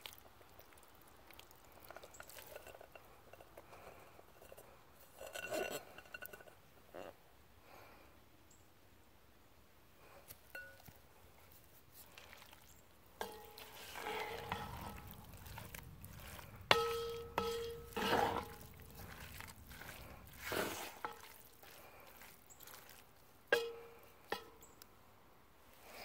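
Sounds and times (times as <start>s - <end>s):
wet squelching stirring scrapes: 0.0s - 7.1s, 10.1s - 24.7s
spoon knocking against pot: 16.7s - 18.1s, 23.5s - 24.6s.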